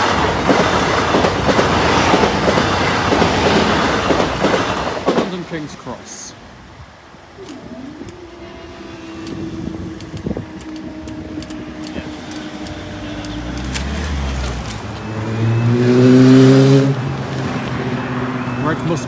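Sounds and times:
level-crossing barriers humming: 0.0 - 19.0
car engine accelerating: 8.6 - 18.8.

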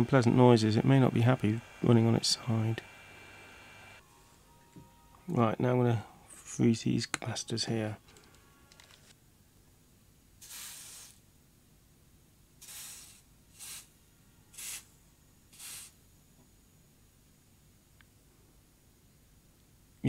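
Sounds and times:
aerosol spray hissing: 0.0 - 4.0, 10.4 - 11.2, 12.6 - 14.0, 14.6 - 14.9, 15.5 - 16.0.

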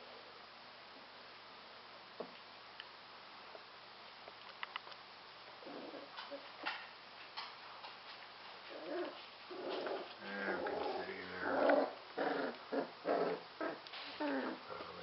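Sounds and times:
puppies growling: 5.6 - 6.5, 8.6 - 15.0.

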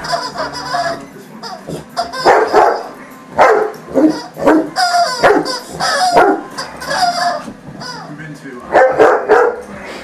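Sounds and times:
large dogs barking: 2.3 - 5.5, 6.2 - 6.5, 8.7 - 9.7.

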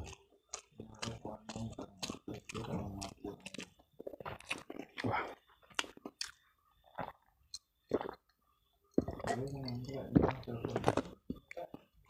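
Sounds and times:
person chewing crunchy food: 0.0 - 12.0.

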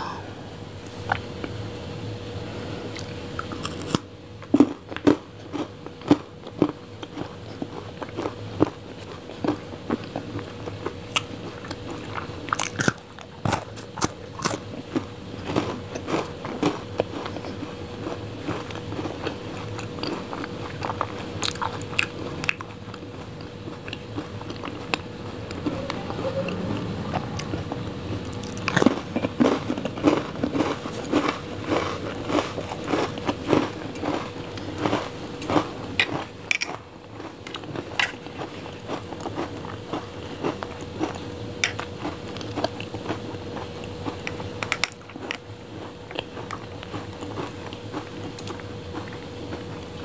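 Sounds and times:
faint steady hum: 0.0 - 50.0
crunchy chewing: 2.8 - 50.0
mouth sounds: 25.5 - 28.8.

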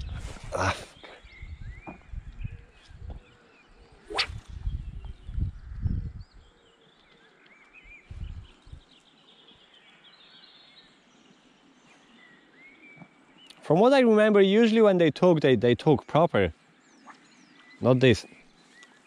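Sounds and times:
birds singing faintly: 0.0 - 19.0
fishing rod swishing: 4.1 - 4.5.

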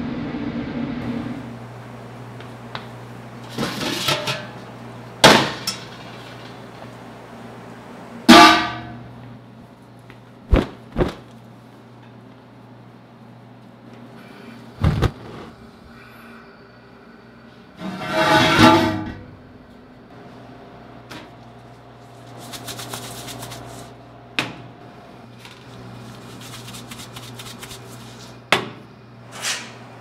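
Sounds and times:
steady low hum: 0.0 - 30.0
metal cookware clanking: 3.5 - 4.6, 5.2 - 6.6.

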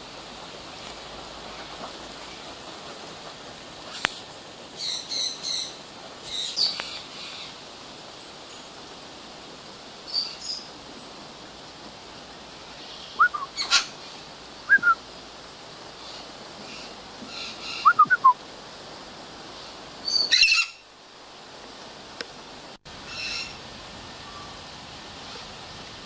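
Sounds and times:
steady hiss: 0.0 - 26.0
birds chirping: 3.9 - 7.6
short rising bird calls: 16.1 - 18.4.

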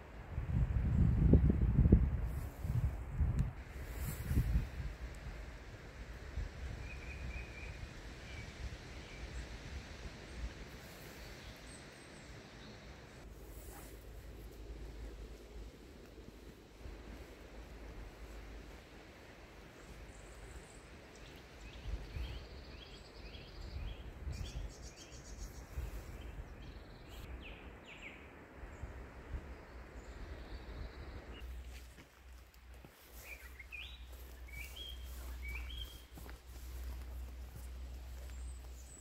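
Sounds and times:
low outdoor rumble: 0.0 - 24.3, 26.4 - 39.0
small birds chirping: 17.1 - 31.9, 32.5 - 39.0.

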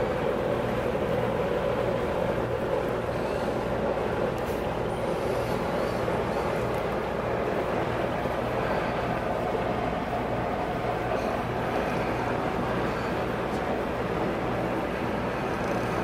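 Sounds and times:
air conditioning unit drone: 0.0 - 16.0.

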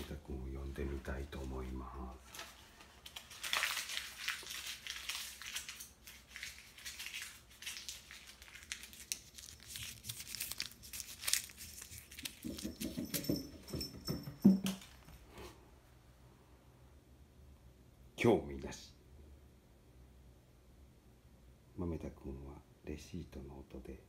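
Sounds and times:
paper receipt crumpling: 2.2 - 12.7.

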